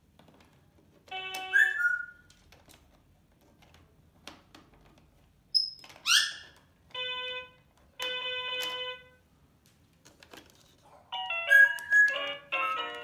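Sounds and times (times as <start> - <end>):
toy piano notes: 1.1 - 2.0, 6.9 - 9.2, 11.1 - 13.0
parrot whistle: 1.5 - 2.2, 11.5 - 12.3.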